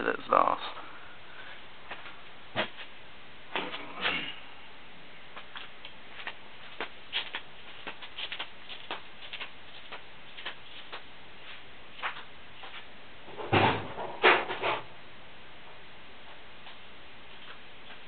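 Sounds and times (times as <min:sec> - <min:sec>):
flip-flop footsteps on concrete: 0:05.4 - 0:12.9.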